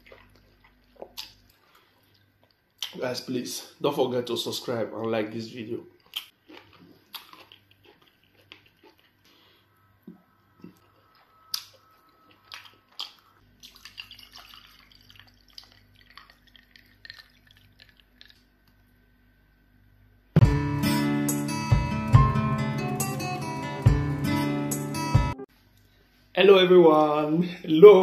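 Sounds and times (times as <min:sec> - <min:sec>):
hands squishing food: 0:00.0 - 0:03.0, 0:12.3 - 0:19.0
water poured into a glass: 0:13.7 - 0:17.6.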